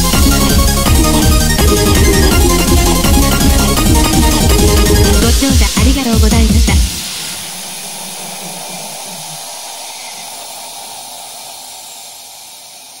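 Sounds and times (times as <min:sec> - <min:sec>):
electronic dance music: 0:00.0 - 0:13.0
steady hissing noise: 0:00.0 - 0:13.0.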